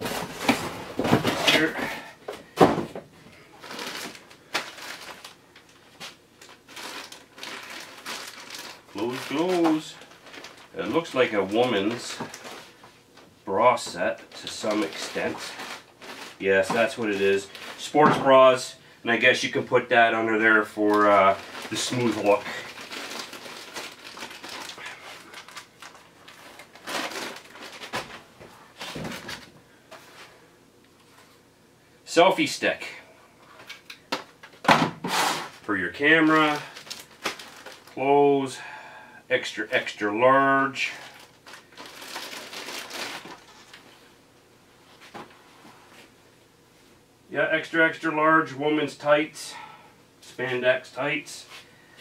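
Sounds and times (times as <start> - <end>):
plastic packaging rustling: 0.0 - 2.9, 3.6 - 30.4, 33.5 - 38.0, 41.0 - 44.1.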